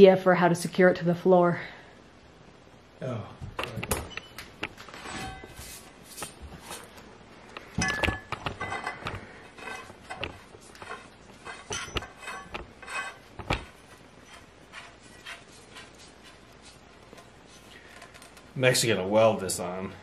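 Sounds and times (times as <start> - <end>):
metal pipe clinking and knocking: 7.7 - 14.4.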